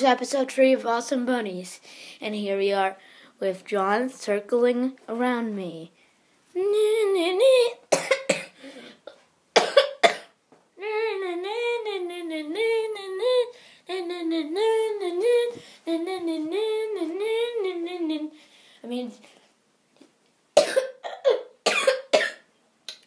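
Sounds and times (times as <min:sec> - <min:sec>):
child coughing: 0:07.9 - 0:08.6, 0:09.6 - 0:10.4, 0:20.6 - 0:22.5.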